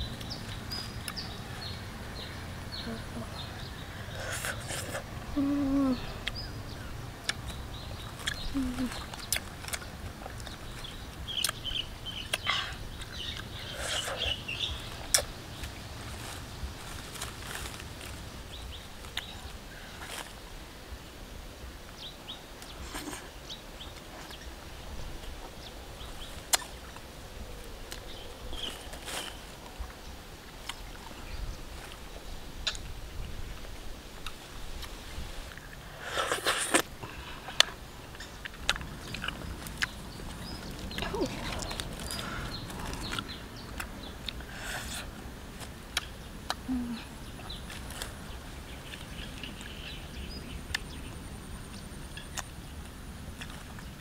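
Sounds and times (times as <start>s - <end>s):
birds chirping: 0.0s - 20.9s, 21.9s - 54.0s
leaves rustling: 0.0s - 54.0s
person peeling fruit: 4.1s - 6.4s, 7.2s - 11.7s, 12.3s - 18.4s, 35.6s - 49.6s
crunching: 7.2s - 11.6s, 12.2s - 20.4s, 26.2s - 27.1s, 34.2s - 49.6s.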